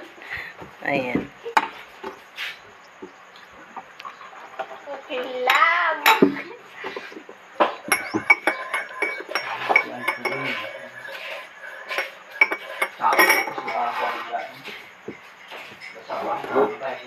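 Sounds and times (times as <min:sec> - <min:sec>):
spoon clinking in ceramic cup: 0:07.8 - 0:14.0.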